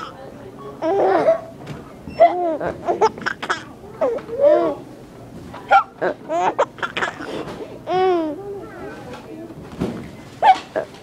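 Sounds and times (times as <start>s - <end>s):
baby giggling: 0.8s - 1.5s, 2.2s - 4.8s, 5.7s - 8.4s.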